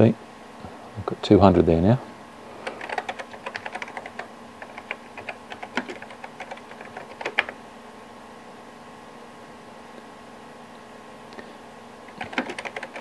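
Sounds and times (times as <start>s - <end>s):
typing on computer keyboard: 2.6s - 7.6s, 12.1s - 13.0s.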